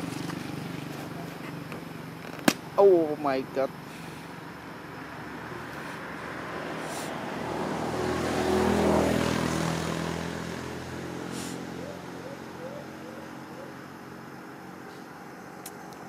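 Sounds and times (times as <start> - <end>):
vehicle engine passing by: 4.2 - 15.5.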